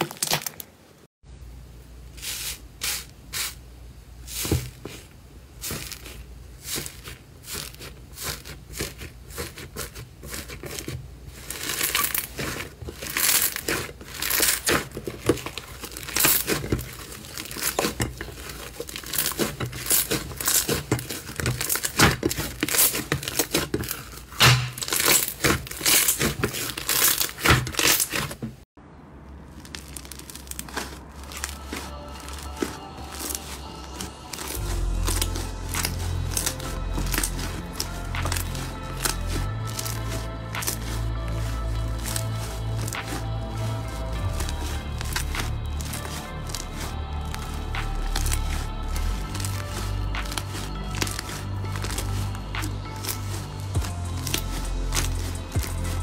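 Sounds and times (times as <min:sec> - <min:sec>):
soft slime squishing: 0:04.2 - 0:28.5, 0:29.4 - 0:56.0
slime crust crackling: 0:04.3 - 0:28.6, 0:29.4 - 0:56.0.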